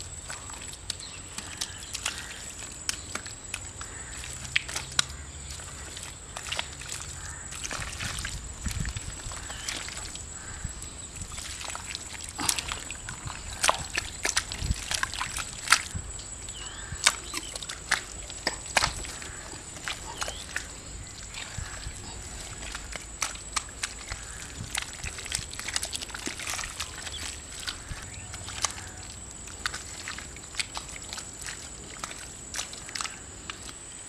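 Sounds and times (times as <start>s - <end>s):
hands slapping wet mud: 0.2s - 33.8s.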